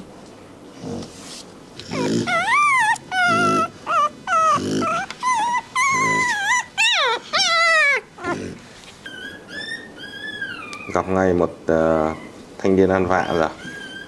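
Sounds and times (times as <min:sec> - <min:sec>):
puppy grunting: 0:01.8 - 0:11.2, 0:13.0 - 0:14.0
puppy whining and squealing: 0:01.8 - 0:11.2, 0:12.0 - 0:14.0.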